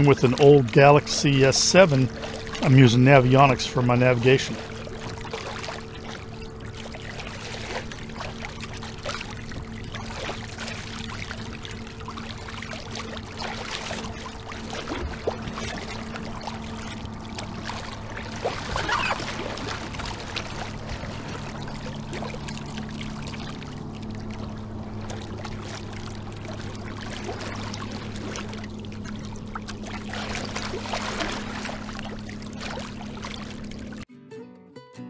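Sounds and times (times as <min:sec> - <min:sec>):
bright splashes: 0:00.0 - 0:34.0
steady low hum: 0:00.0 - 0:34.1
water rushing along hull: 0:00.0 - 0:34.1.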